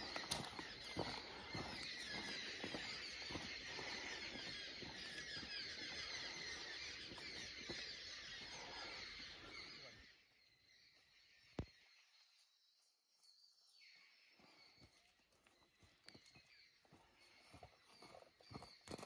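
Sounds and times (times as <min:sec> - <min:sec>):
high chirping chorus: 0:00.0 - 0:12.2.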